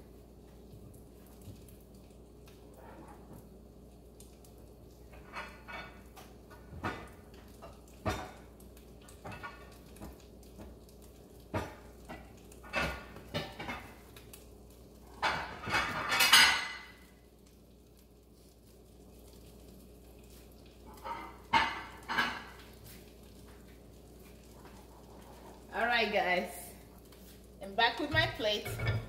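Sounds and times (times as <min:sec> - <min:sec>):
dishes clinking and clattering: 0:05.1 - 0:14.2, 0:15.1 - 0:17.1, 0:20.8 - 0:23.5, 0:28.1 - 0:29.0.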